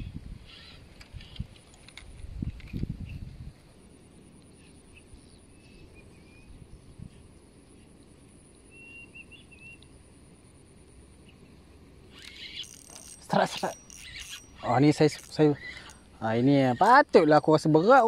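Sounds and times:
low wind rumble: 0:00.0 - 0:08.6
faint steady high tone: 0:12.1 - 0:18.0
short high bird chirps: 0:12.1 - 0:18.0.

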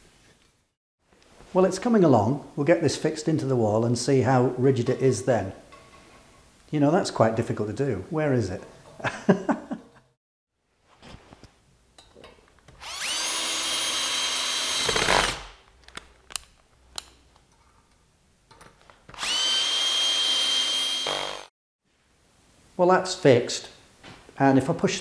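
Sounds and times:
cordless drill running: 0:12.8 - 0:15.5, 0:19.1 - 0:21.5
small clicks and knocks: 0:15.6 - 0:19.2.

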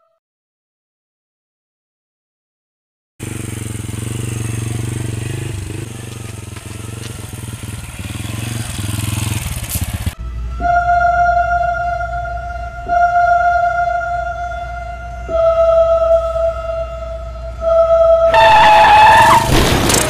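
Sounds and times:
motorcycle engine running: 0:03.2 - 0:10.4.

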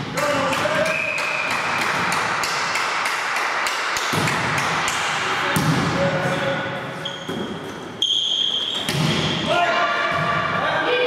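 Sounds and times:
shoe squeaks: 0:07.0 - 0:08.9.

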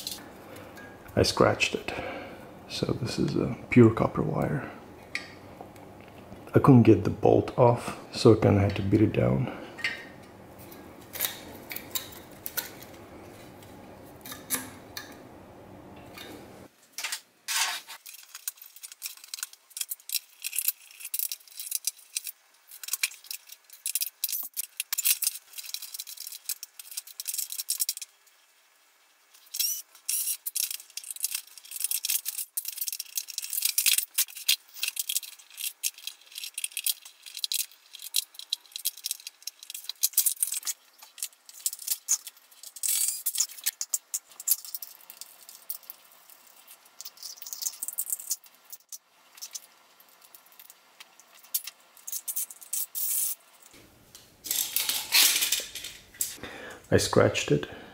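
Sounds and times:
screws and plastic parts clattering: 0:17.0 - 0:28.1, 0:29.4 - 0:53.4, 0:54.4 - 0:56.4.

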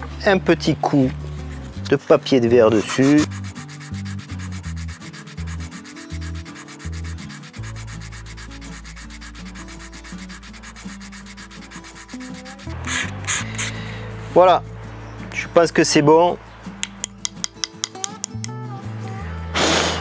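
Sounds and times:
sandpaper rubbing on wood: 0:01.4 - 0:13.8.

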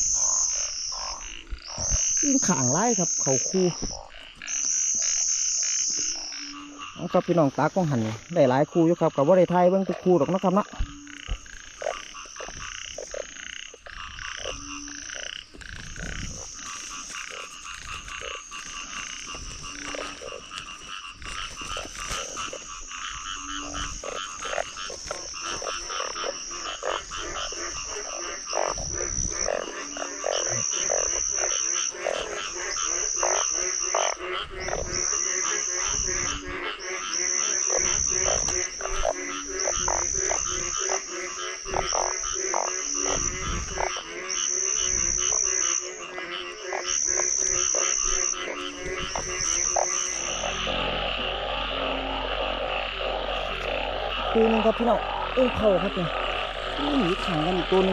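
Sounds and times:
frogs croaking: 0:00.0 - 0:57.9
high repeating frog call: 0:00.0 - 0:57.9.

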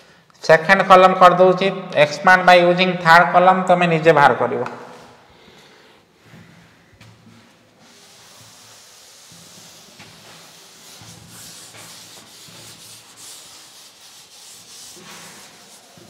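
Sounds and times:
cloth rubbing on chalkboard: 0:07.3 - 0:16.0.

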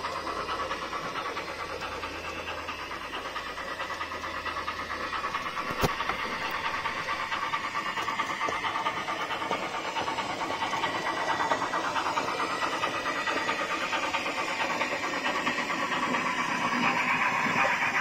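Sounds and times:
rapid rattling ticks: 0:00.0 - 0:17.0
model train motor whirring: 0:00.0 - 0:18.0.

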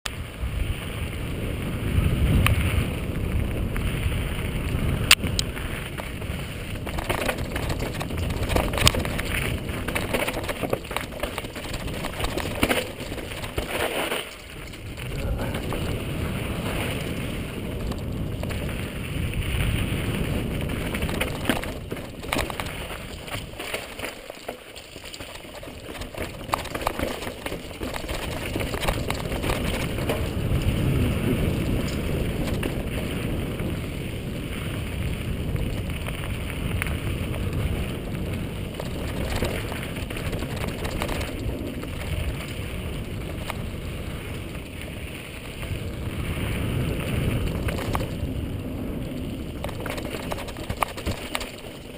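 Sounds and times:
bike rattling: 0:00.1 - 0:51.9
bike tyres crunching over dirt: 0:00.1 - 0:51.9
wind rumble on microphone: 0:00.1 - 0:51.9.

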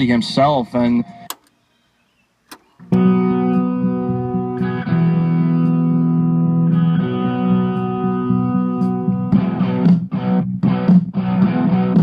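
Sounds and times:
boombox button click: 0:01.3 - 0:01.6, 0:02.5 - 0:03.0
electric guitar music from speakers: 0:02.7 - 0:12.0.

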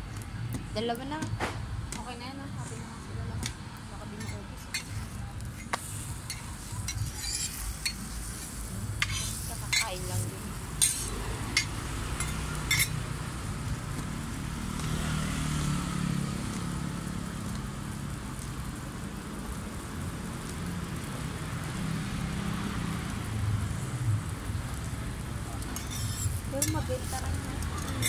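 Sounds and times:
passing vehicle engine rumble: 0:01.7 - 0:28.0
metal spatula striking griddle: 0:04.2 - 0:08.2, 0:09.0 - 0:10.1, 0:10.8 - 0:13.0, 0:25.7 - 0:27.2.

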